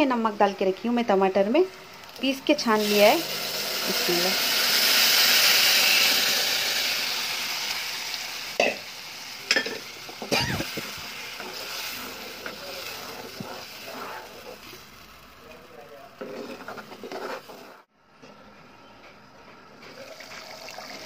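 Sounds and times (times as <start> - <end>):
puree sizzling in hot oil: 1.8 - 17.9.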